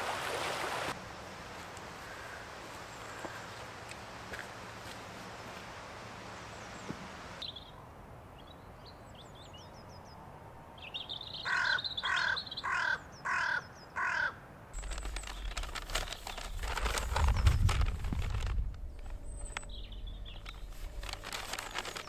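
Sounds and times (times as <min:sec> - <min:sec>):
crow cawing: 0:02.0 - 0:03.6, 0:11.4 - 0:14.4
small birds chirping: 0:14.8 - 0:21.3
wind rumble on microphone: 0:14.8 - 0:21.3
rustling: 0:14.8 - 0:22.0.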